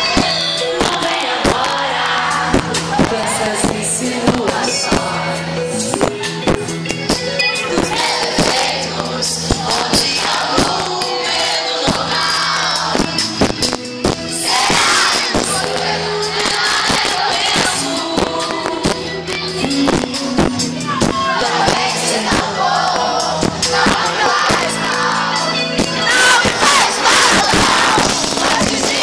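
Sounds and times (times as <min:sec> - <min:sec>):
woman singing: 0:00.0 - 0:06.0, 0:14.4 - 0:23.2, 0:23.8 - 0:29.0
crowd shouting and singing along: 0:00.0 - 0:29.0
live pop band playing: 0:00.0 - 0:29.0.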